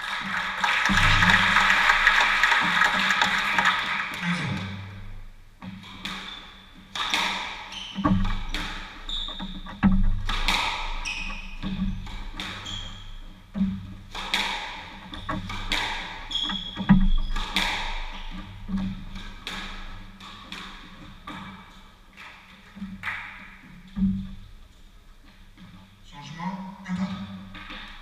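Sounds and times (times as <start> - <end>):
squash ball striking rackets and walls: 5.6 - 24.4
shoes squeaking on wooden floor: 7.6 - 10.1, 10.8 - 14.0, 16.2 - 19.4.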